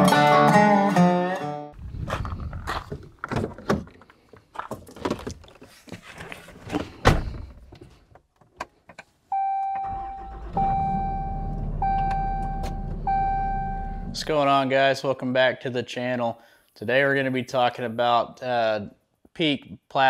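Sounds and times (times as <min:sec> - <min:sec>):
electronic warning beeps: 0:09.4 - 0:14.2
low hum: 0:09.9 - 0:14.2.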